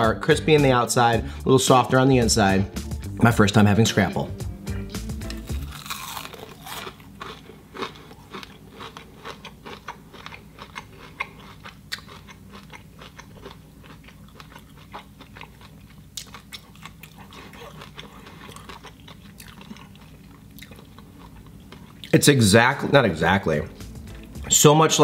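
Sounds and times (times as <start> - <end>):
person chewing crunchy food: 5.1 - 22.2.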